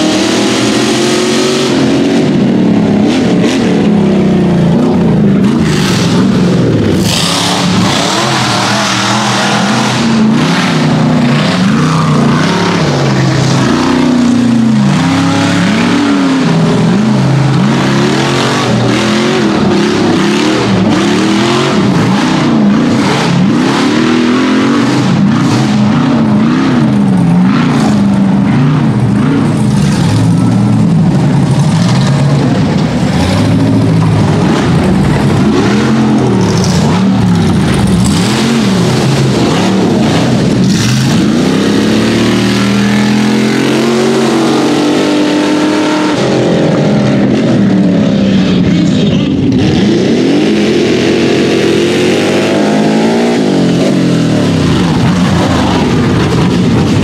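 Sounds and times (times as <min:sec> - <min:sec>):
buggy engine revving hard: 0:00.0 - 0:57.0.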